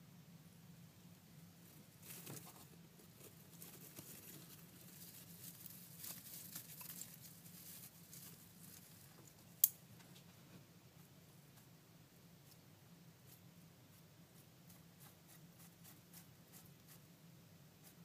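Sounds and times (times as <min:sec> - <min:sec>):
scratching in wood-chip bedding: 0:01.6 - 0:09.4.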